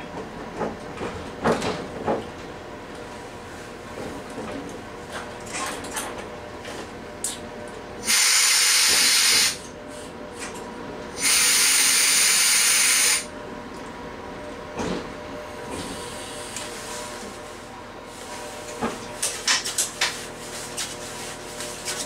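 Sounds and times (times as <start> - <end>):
compressed air hissing: 8.0 - 9.6, 11.2 - 13.3.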